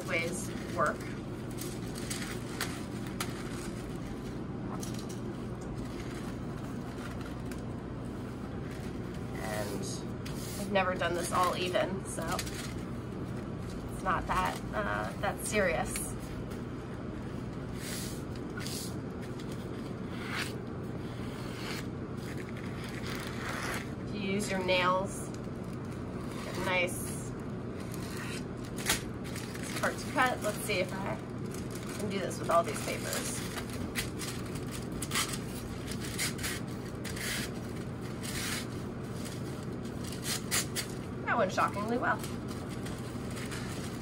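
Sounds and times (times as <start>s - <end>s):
steady low hum: 0.0s - 44.0s
paper folding swishes and scrapes: 8.2s - 10.8s, 17.6s - 24.0s, 31.9s - 41.0s.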